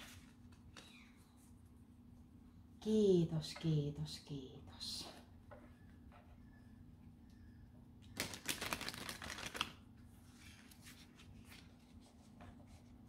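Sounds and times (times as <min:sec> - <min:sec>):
soft card handling: 0:00.0 - 0:01.7, 0:08.6 - 0:13.0.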